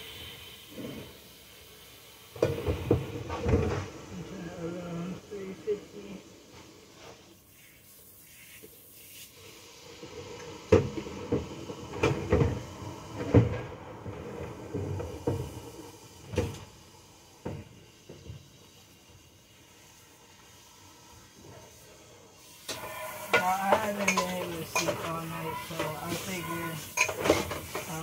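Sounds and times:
kitchenware knocking and bumping: 0:22.8 - 0:28.0.

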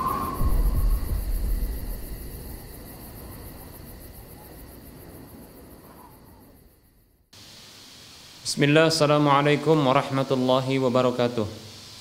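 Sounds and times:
low rumble: 0:00.0 - 0:05.8
high-pitched insect-like chirping: 0:00.0 - 0:06.9.

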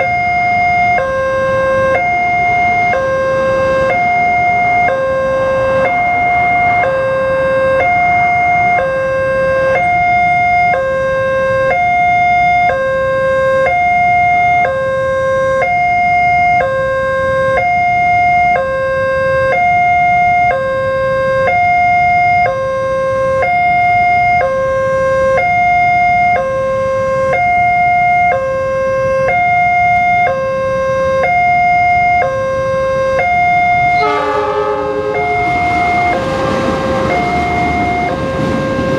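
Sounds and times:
level crossing two-tone alarm: 0:00.0 - 0:38.9
low traffic rumble: 0:33.5 - 0:38.9.

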